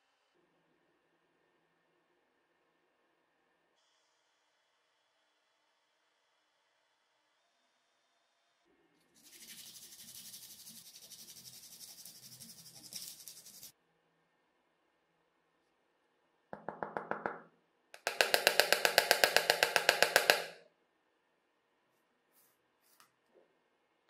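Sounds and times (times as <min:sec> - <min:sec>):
sandpaper rubbing on plastic: 0:09.2 - 0:13.7.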